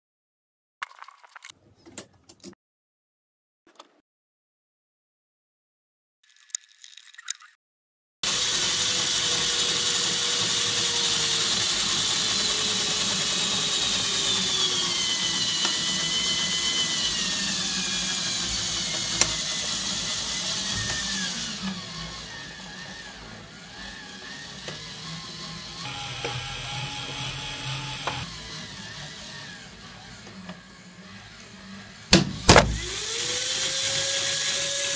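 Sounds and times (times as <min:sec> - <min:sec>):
small motor whining: 0:08.2 - 0:34.9.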